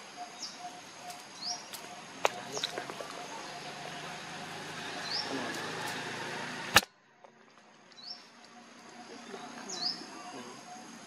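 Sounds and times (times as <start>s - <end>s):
bird chirp: 0.0s - 6.6s, 7.5s - 11.0s
outdoor background hiss: 0.0s - 11.0s
sharp click: 6.7s - 6.9s.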